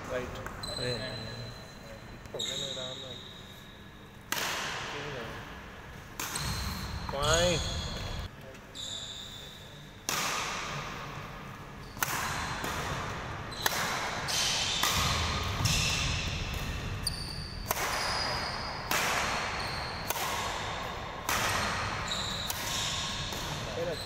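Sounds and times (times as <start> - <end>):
shoes squeaking on court floor: 0.0 - 4.2, 6.3 - 10.0, 11.8 - 12.0, 13.5 - 20.2, 21.6 - 24.0
rackets striking shuttlecock: 4.3 - 5.0, 6.1 - 8.3, 10.0 - 11.0, 11.8 - 23.9.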